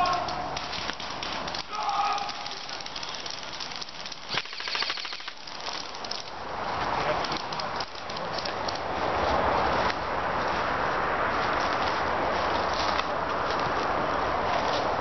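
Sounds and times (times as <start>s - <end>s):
airsoft rifle full-auto burst: 4.3s - 5.5s.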